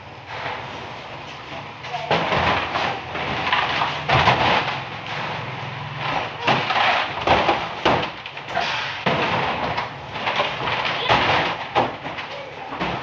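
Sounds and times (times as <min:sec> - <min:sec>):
plastic cans knocking and thudding: 0:01.4 - 0:13.0.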